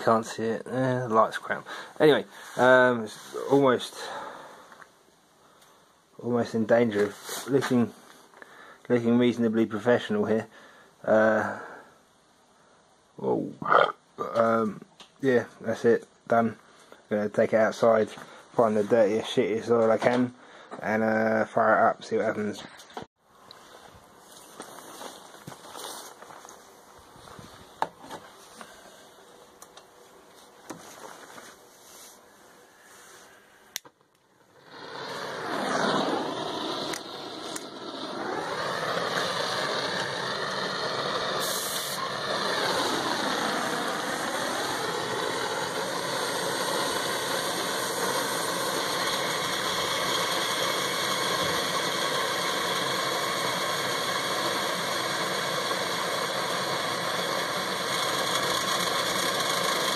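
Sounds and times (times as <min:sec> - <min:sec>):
forge burner roaring: 0:33.7 - 0:59.9.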